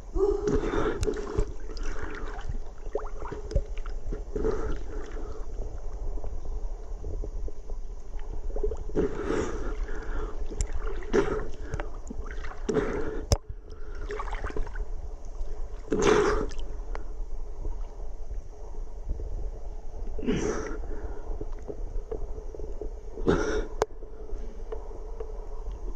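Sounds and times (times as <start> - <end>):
low steady rumble: 0.0 - 25.9
river water splashing: 1.0 - 5.4, 9.0 - 13.2, 13.9 - 16.6.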